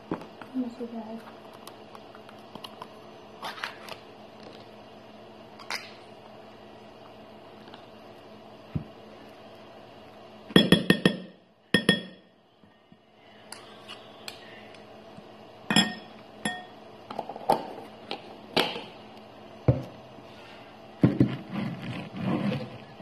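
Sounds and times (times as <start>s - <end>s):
metal spoons clinking on glass bowl: 15.7s - 16.7s.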